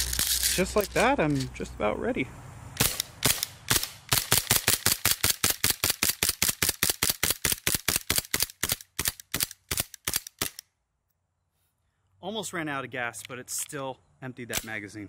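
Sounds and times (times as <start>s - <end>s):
airsoft pistol shots: 2.8s - 10.6s, 14.5s - 14.8s.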